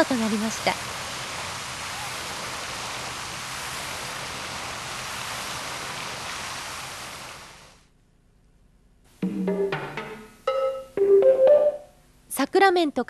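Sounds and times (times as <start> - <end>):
steady rushing noise: 0.0 - 7.8
faint low hum: 7.8 - 13.0.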